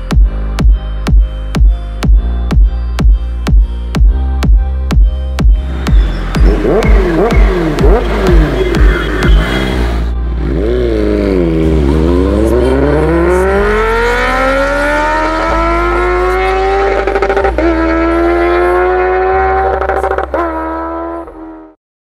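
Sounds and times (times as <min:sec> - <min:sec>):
motorcycle accelerating: 0:05.6 - 0:21.8.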